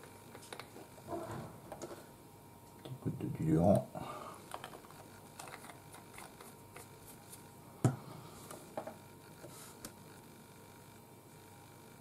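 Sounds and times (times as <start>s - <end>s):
painting tools clicking and tapping: 4.5s - 6.9s.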